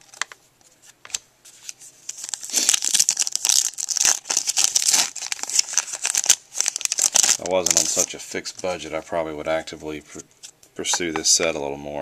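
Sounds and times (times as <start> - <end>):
foil wrapper crinkling and tearing: 1.6 - 8.8.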